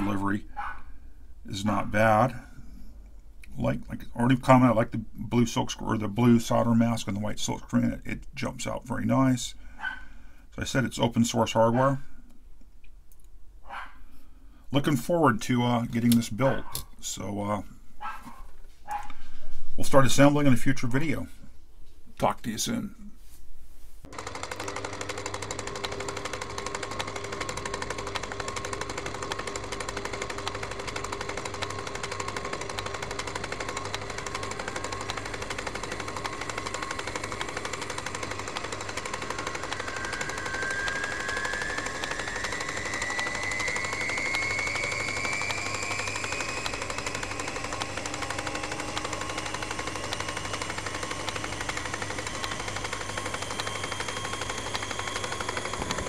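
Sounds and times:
machine rattle with low hum: 24.1 - 56.0
rising whine: 24.1 - 56.0.

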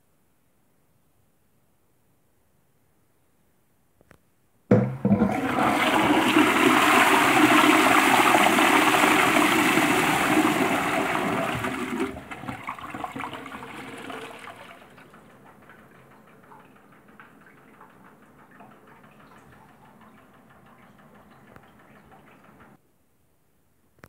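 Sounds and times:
toilet flushing: 4.7 - 22.8.

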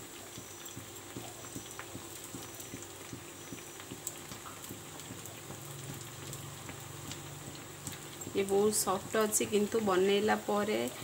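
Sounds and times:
patties sizzling in hot oil: 0.0 - 11.0.

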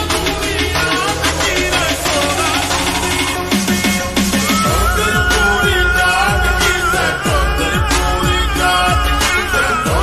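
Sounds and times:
slowed pop song with bass kicks: 0.0 - 10.0.

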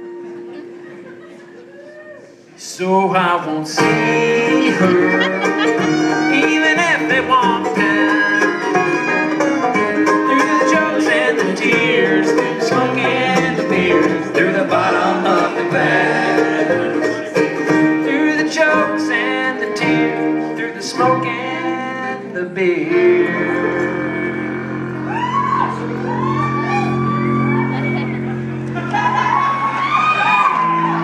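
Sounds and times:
bluegrass band playing: 0.0 - 31.0.

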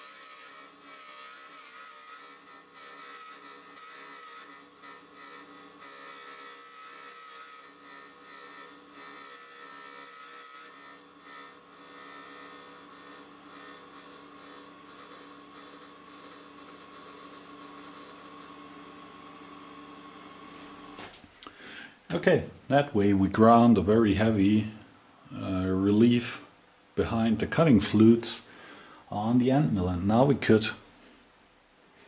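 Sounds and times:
rough grinding hiss: 0.0 - 19.6
grinder spindle whining: 0.0 - 21.0.

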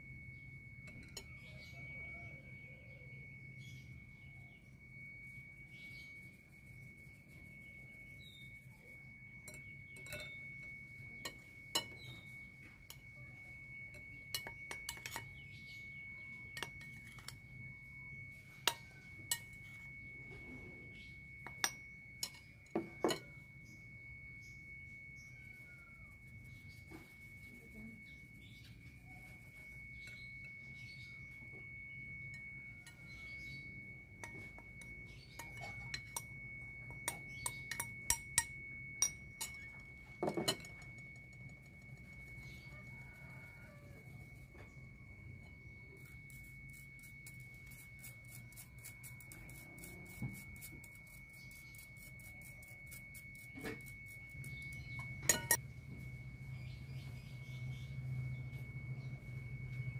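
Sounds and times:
faint high-pitched whine: 0.0 - 59.9
sieve tapping glass bowl: 21.4 - 23.3, 55.0 - 55.6.

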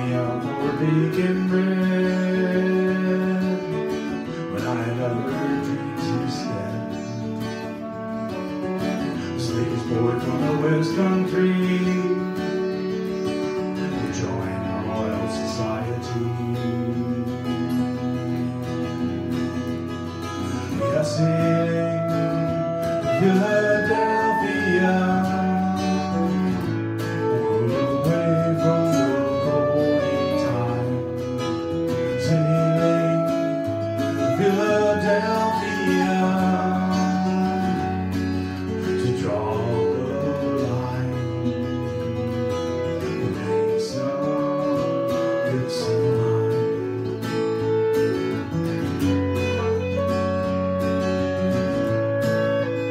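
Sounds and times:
acoustic guitar strumming: 0.0 - 52.9
clarinet playing long notes: 0.0 - 52.9.

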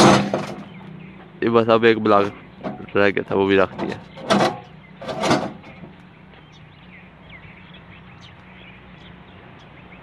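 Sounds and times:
concrete block scraping: 3.7 - 6.0.

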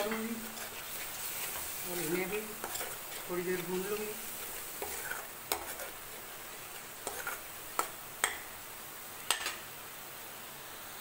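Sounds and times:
steel spoon scraping a pan: 0.0 - 8.6
spices sizzling in oil: 0.0 - 11.0.

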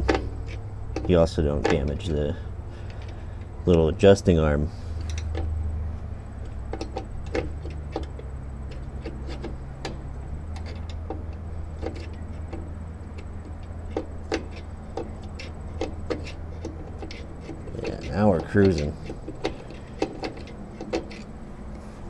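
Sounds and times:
low hum: 0.0 - 22.0
sharp metal clicks: 5.0 - 5.6, 6.3 - 21.4.

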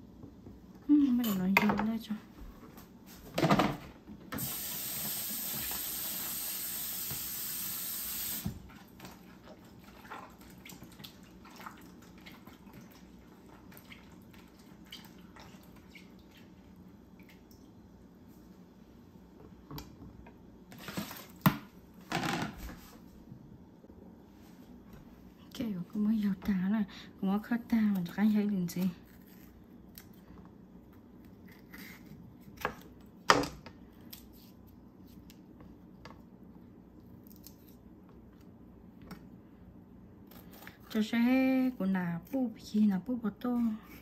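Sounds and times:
kitchen tap running: 4.4 - 8.7.

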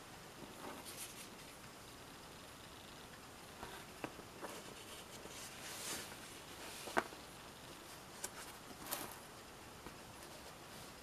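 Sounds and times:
paper pages rustling: 0.7 - 1.5.

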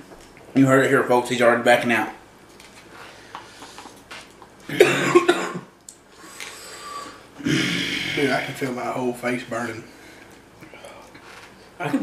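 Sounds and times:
man coughing: 4.7 - 5.7.

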